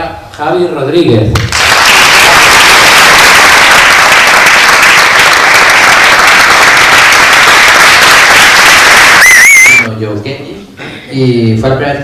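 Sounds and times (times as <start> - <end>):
audience applauding: 1.4 - 9.9.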